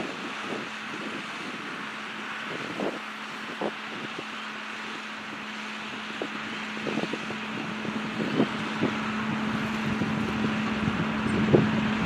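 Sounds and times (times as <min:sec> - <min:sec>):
machinery engine idling: 0:00.0 - 0:12.0.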